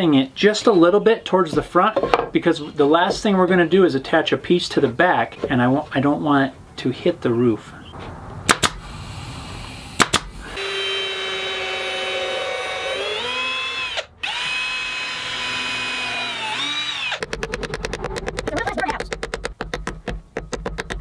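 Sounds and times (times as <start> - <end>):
pneumatic nailer firing: 8.5 - 9.0, 9.9 - 11.2
cordless drill running: 10.4 - 17.3
hammer taps: 17.2 - 21.0.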